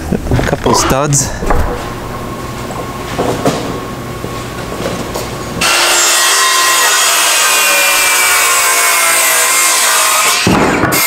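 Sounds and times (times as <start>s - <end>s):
circular saw cutting a board: 5.6s - 11.0s.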